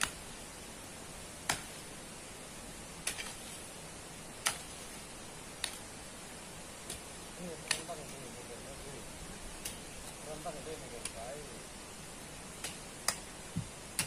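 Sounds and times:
digging tool striking gravel: 0.0 - 0.2, 1.4 - 1.9, 3.0 - 3.7, 4.4 - 5.0, 5.6 - 5.9, 6.8 - 8.3, 9.6 - 11.3, 12.6 - 14.0
steady hiss: 0.0 - 14.0.

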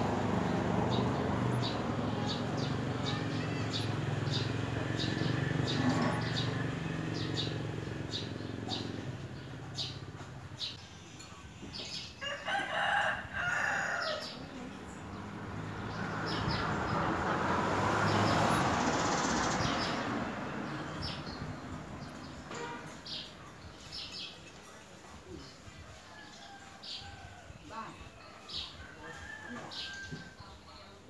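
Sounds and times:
small birds chirping: 0.9 - 12.2.

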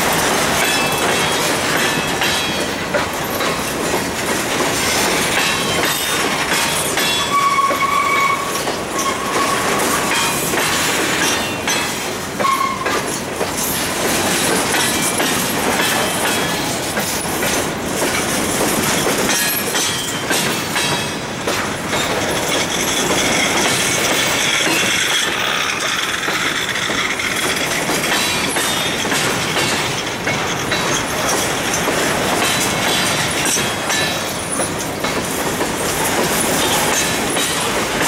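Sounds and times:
train rumble: 0.0 - 38.0
wheels clicking over rail joints: 0.0 - 38.0
high-pitched wheel squeals: 7.2 - 10.1, 12.4 - 12.9.

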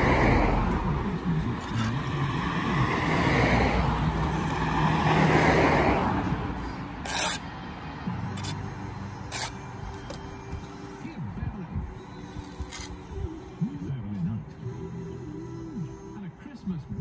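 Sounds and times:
road traffic: 0.0 - 17.0
vehicle engine humming: 0.0 - 17.0
short sharp scrape: 7.0 - 7.4.

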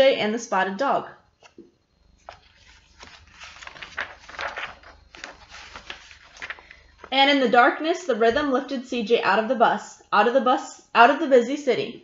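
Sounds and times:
book pages rustling and turning: 1.4 - 7.2.

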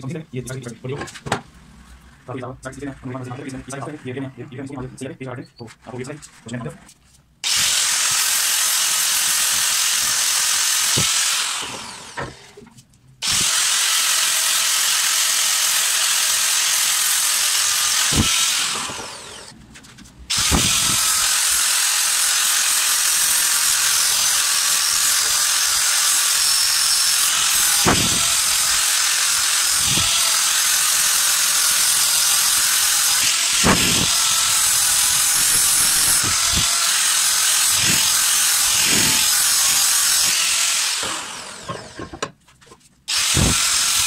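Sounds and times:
angle grinder grinding metal: 7.4 - 12.6, 13.2 - 19.6, 20.3 - 42.4, 43.1 - 44.0
grinder winding down: 7.4 - 12.6, 13.2 - 19.6, 20.3 - 42.2, 43.1 - 44.0.

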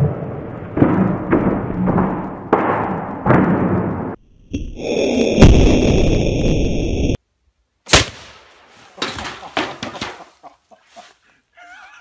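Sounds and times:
knocks and rattles: 0.0 - 4.2, 9.0 - 10.4.

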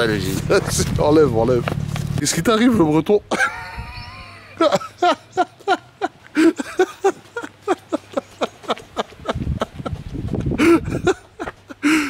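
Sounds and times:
man laughing: 3.2 - 12.0.

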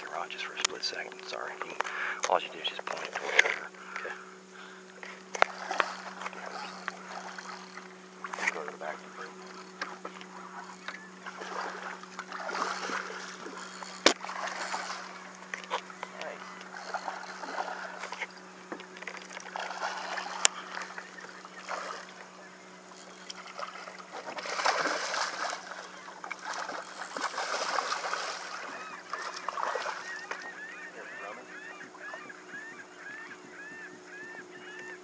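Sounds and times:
fish thrashing and splashing: 5.0 - 8.7, 9.3 - 30.5
short rising and falling squeaks: 5.1 - 24.0, 25.8 - 34.8.

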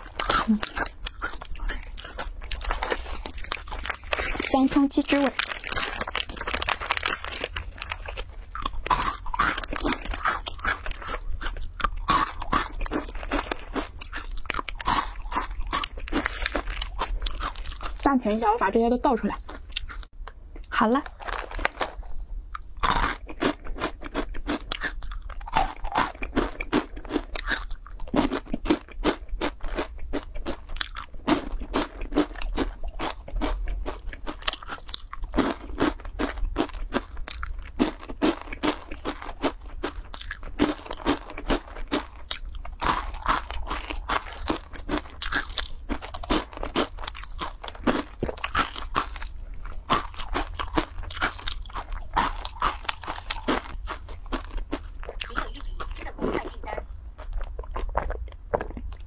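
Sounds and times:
crunchy chewing: 0.0 - 18.6, 19.3 - 59.0.

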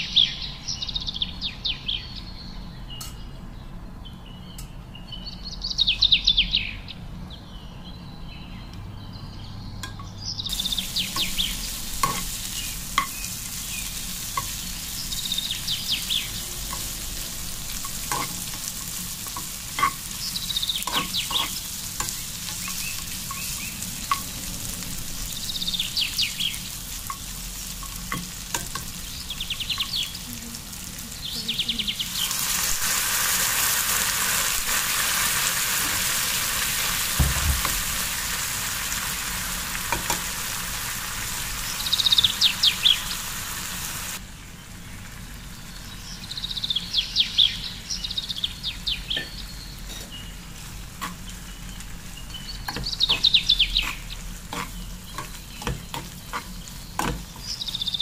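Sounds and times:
fruit sizzling in a frying pan: 9.9 - 58.0
spoon clicking against pan: 17.8 - 20.2, 27.0 - 29.0.

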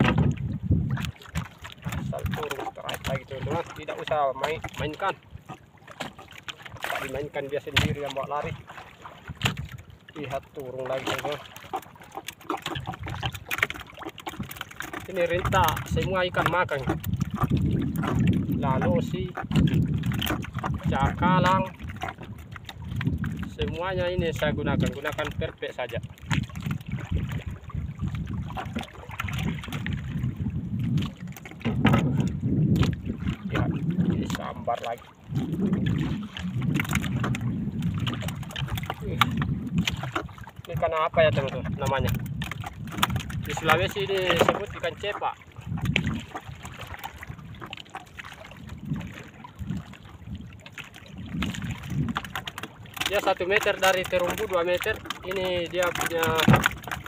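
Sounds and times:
wind buffeting microphone: 0.0 - 11.8, 12.6 - 57.0
water lapping at hull: 0.0 - 57.0
small knocks: 55.9 - 57.0.

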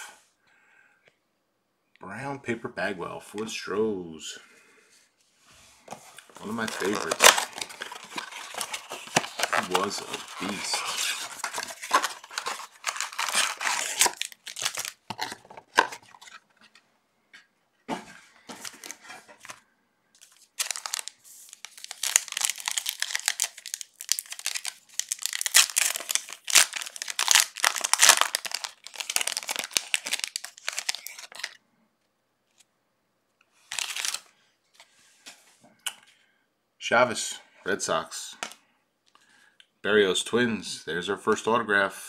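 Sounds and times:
foil wrappers tearing and crinkling: 6.3 - 16.3, 20.2 - 31.6, 33.6 - 34.3.

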